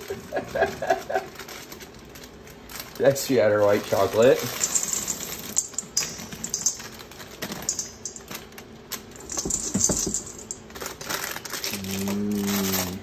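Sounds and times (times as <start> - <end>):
chocolate chips clattering in metal bowl: 2.9 - 13.0.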